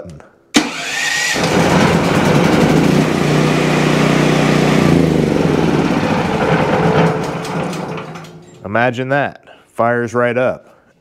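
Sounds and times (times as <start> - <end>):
generator engine starting and running: 0.6 - 8.7.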